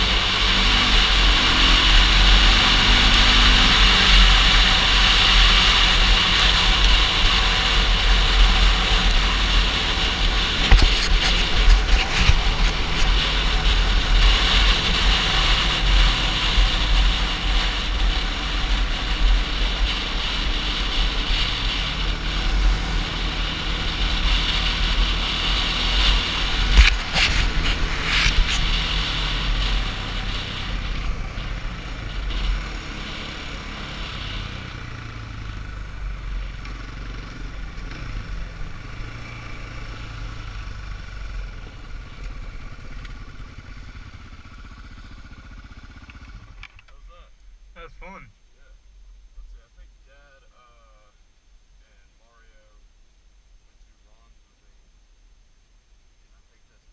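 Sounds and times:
atv engine revving: 0.0 - 47.0.

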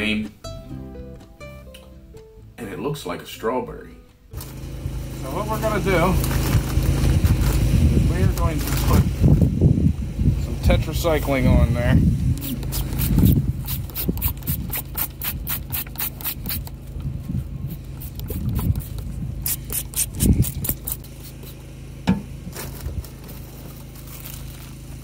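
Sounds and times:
steady low hum: 2.0 - 25.0
spray bottle squirting: 12.4 - 16.8, 17.7 - 21.6.

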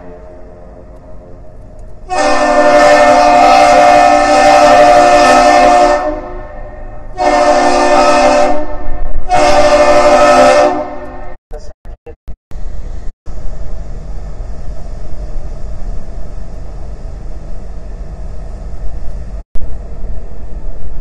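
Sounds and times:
deep horn blasts: 0.0 - 11.4.

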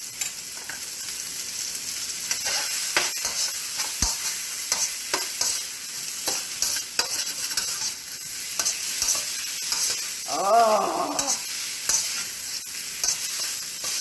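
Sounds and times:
meat sizzling in oil: 0.0 - 14.0
spatula scraping a wok: 2.3 - 10.3, 11.2 - 14.0.

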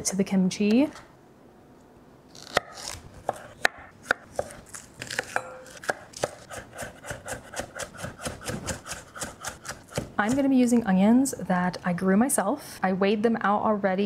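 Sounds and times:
knife chopping on wooden board: 2.5 - 10.5.

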